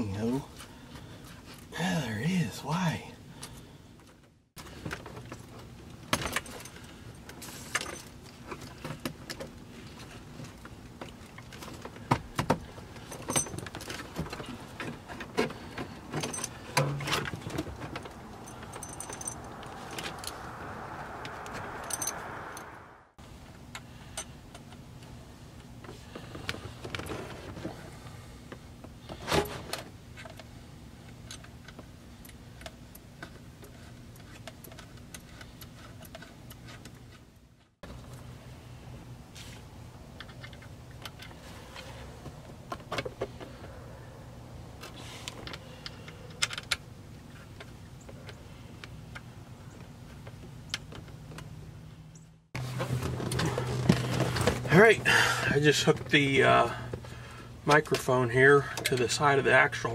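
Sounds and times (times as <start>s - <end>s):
small metal hardware clinking: 18.4s - 19.6s.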